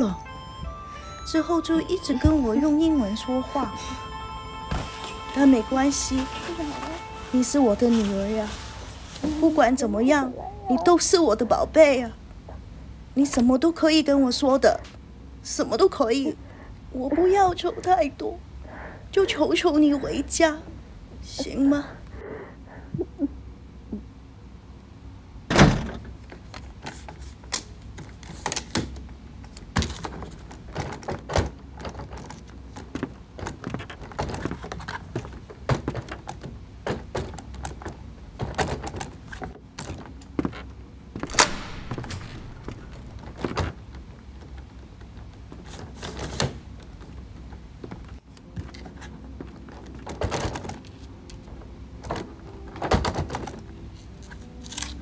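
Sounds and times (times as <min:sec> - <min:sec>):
low steady hum: 0:00.0 - 0:26.6, 0:29.0 - 0:45.9, 0:46.6 - 0:55.0
door thuds and clicks: 0:41.2 - 0:43.8.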